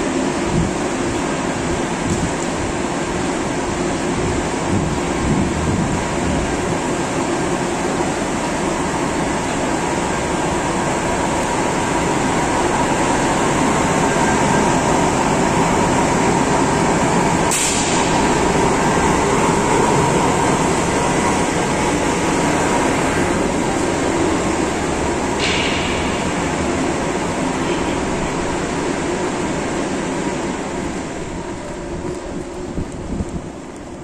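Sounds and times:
dust collector fan roaring: 11.2s - 31.4s
short sharp hiss: 17.5s - 18.2s.

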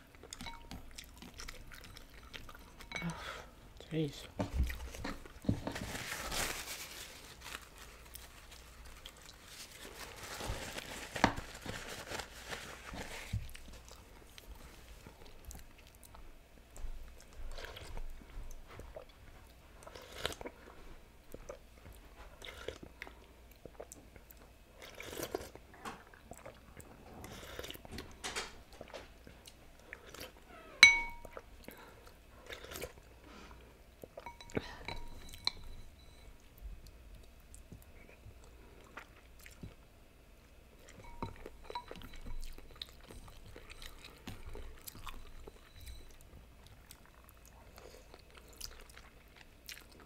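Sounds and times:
chewing: 0.0s - 3.2s, 17.0s - 28.0s, 28.8s - 35.6s, 40.8s - 50.0s.

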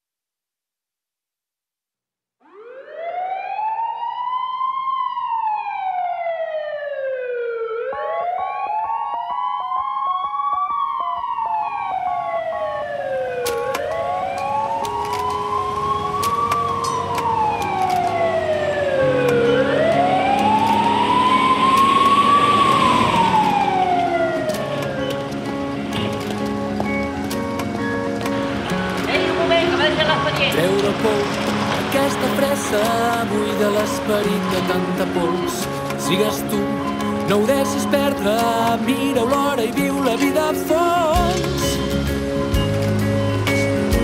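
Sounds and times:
ambulance siren wailing: 2.4s - 44.0s
music: 13.4s - 44.0s.

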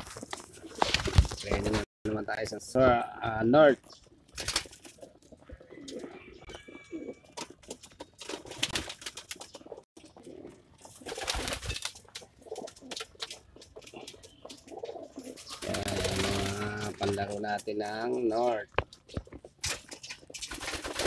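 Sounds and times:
pigeons cooing: 3.9s - 17.4s
beaks pecking on grated floor: 3.9s - 21.0s.

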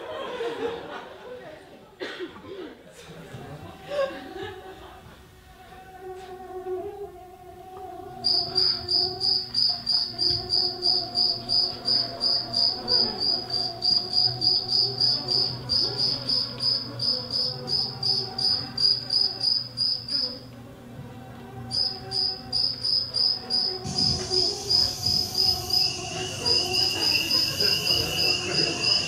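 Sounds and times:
faint low hum: 0.0s - 29.0s
cricket chirping: 8.2s - 20.5s, 21.7s - 29.0s.

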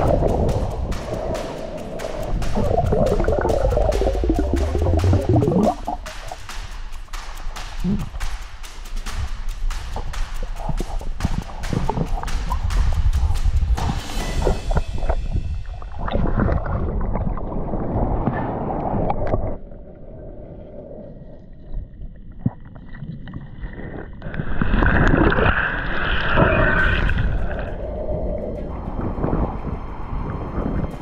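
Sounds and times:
water churning and bubbling underwater: 0.0s - 6.3s, 14.4s - 31.0s.

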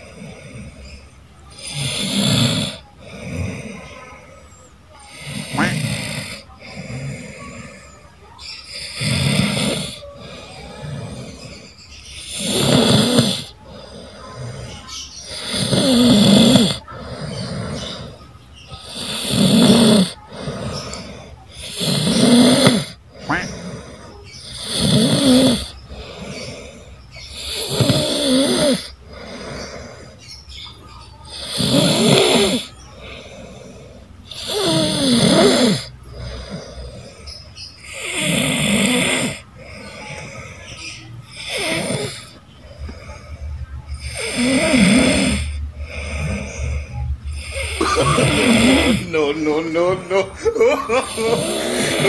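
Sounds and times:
man snoring: 0.0s - 7.9s, 8.6s - 30.2s, 31.3s - 37.2s, 37.8s - 40.7s, 41.3s - 43.3s, 44.0s - 52.0s
quiet breathing: 0.0s - 52.0s.

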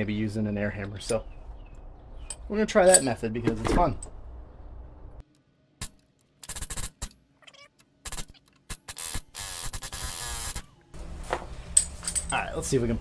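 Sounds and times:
pneumatic air hammer bursts: 8.0s - 10.7s.

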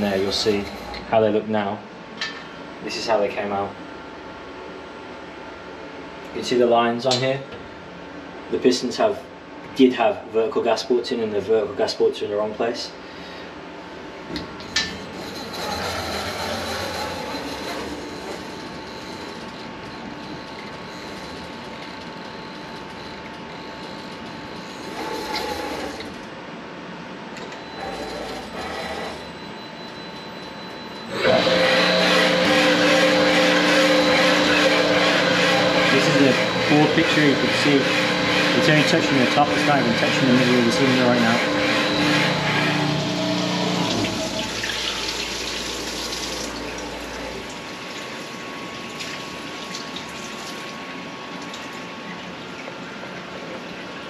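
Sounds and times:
machine hum with faint whine: 0.0s - 54.0s
coolant fluid splashing: 44.0s - 46.8s.

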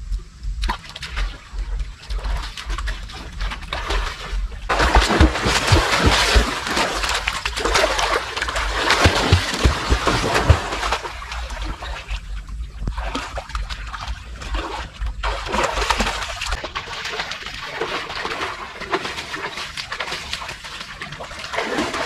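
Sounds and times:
low rumble: 0.0s - 16.7s
pool water splashing: 0.8s - 22.0s.

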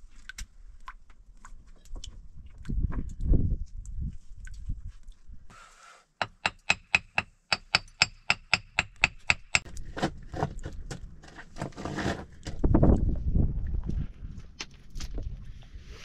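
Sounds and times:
metal tool tapping on stone: 6.2s - 9.7s
scraping and crunching of stone: 9.3s - 13.1s.

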